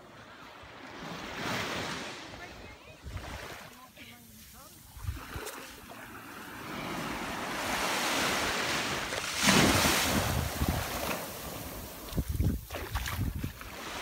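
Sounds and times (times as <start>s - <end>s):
small waves washing onto sand: 0.1s - 14.0s
wind buffeting microphone: 9.6s - 14.0s.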